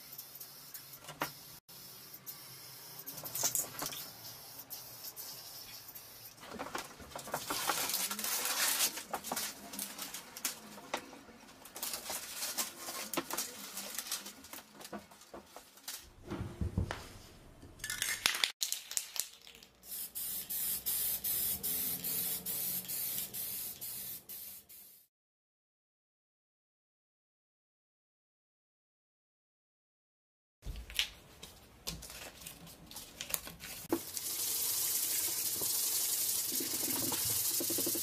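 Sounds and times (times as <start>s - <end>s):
spray paint can hissing: 0.0s - 6.3s, 19.8s - 25.1s, 34.1s - 38.0s.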